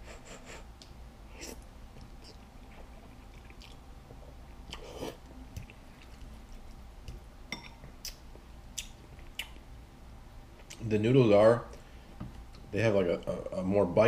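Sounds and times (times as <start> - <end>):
person chewing noodles: 1.3 - 6.9.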